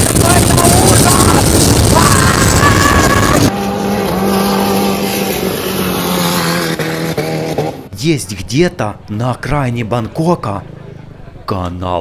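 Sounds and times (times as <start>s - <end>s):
rushing wind and spray: 0.0s - 3.5s
boat engine running flat out: 0.0s - 6.8s.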